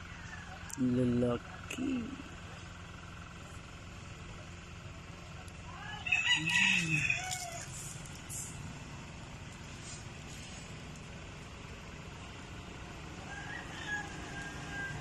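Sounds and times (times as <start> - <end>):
rooster crowing: 0.0 - 0.7, 5.7 - 7.9, 13.2 - 15.0.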